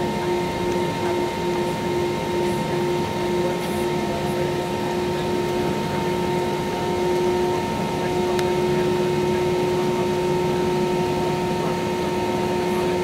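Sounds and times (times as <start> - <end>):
jet engines idling: 0.0 - 13.0.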